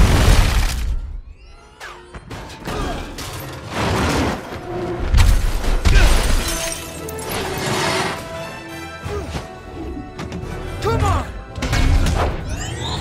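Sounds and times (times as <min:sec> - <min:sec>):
music: 0:00.8 - 0:13.0
glass shattering: 0:05.9 - 0:07.7.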